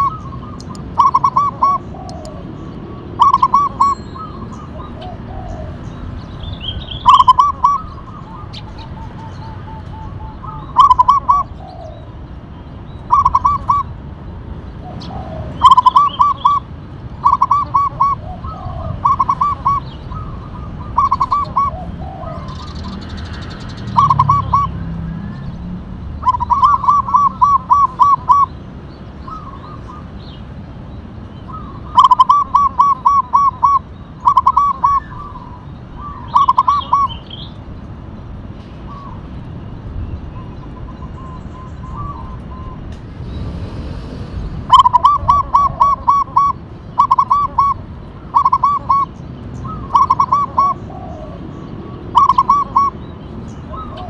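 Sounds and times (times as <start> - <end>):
dove cooing: 0.0 - 6.0, 7.0 - 12.1, 13.1 - 13.9, 14.8 - 23.0, 23.9 - 24.8, 26.2 - 28.5, 31.5 - 37.2, 43.7 - 53.0, 53.7 - 54.0.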